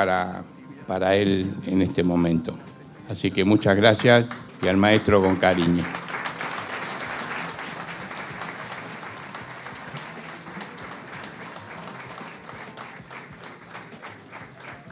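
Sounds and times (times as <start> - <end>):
audience applauding: 4.0 - 14.9.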